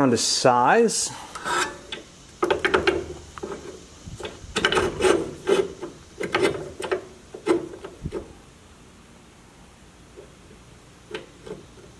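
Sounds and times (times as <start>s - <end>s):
steel bar scraping in vise: 1.3s - 2.0s, 2.7s - 7.9s.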